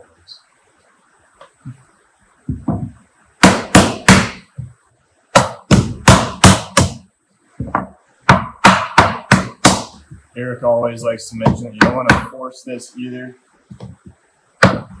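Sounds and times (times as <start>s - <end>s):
wooden mallet knocking on wood: 2.5s - 4.7s, 5.4s - 7.0s, 7.6s - 10.2s, 11.4s - 12.3s, 13.7s - 15.0s.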